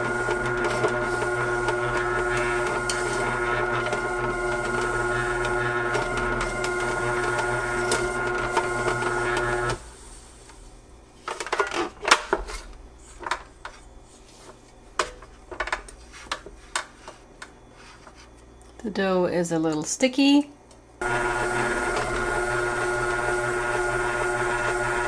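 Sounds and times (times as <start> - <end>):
grinder motor whining: 0.0 - 9.8, 21.0 - 25.0.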